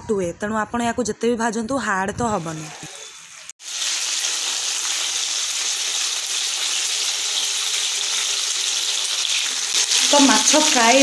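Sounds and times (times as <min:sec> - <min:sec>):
fish sizzling in hot oil: 0:02.6 - 0:11.0.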